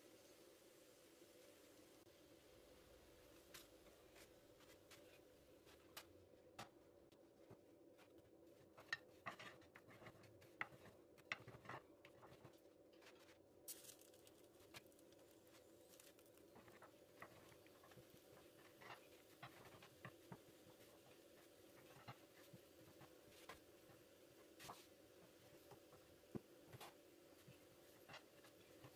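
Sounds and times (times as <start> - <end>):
faint steady hum: 0.0 - 28.9
dough ticking and crackling in pan: 3.2 - 28.9.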